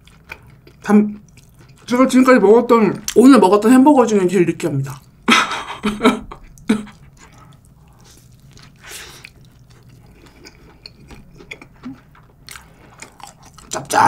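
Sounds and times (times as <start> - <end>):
person chewing food: 0.0 - 1.9, 6.2 - 14.0
laughter: 5.3 - 7.0.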